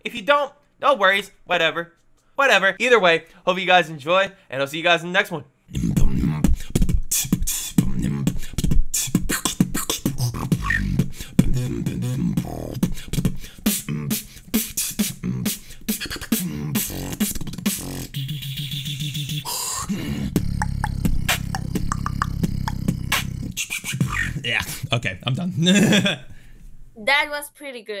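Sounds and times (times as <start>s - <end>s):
person beatboxing: 5.7s - 25.0s.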